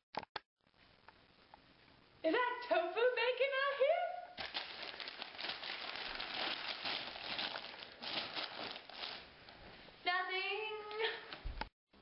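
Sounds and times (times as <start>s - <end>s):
paper rustling and crumpling: 4.4s - 9.3s.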